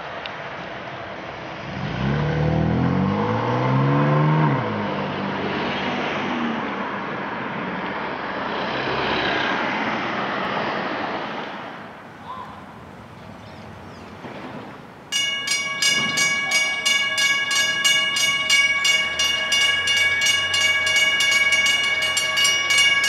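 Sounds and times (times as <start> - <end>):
passing cars tyre and engine noise: 0.0 - 16.4
car engine accelerating: 1.5 - 6.9.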